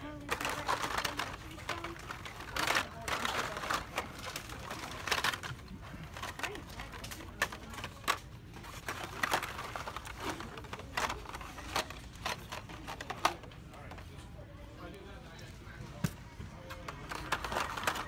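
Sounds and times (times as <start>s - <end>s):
plastic and cardboard clacking: 0.2s - 14.1s, 16.0s - 18.0s.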